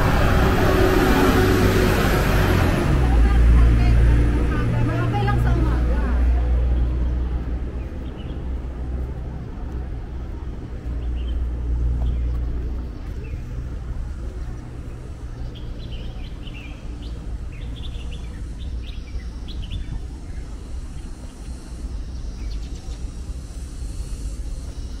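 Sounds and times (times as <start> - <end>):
low rumble of traffic: 0.0 - 25.0
small birds chirping: 6.6 - 25.0.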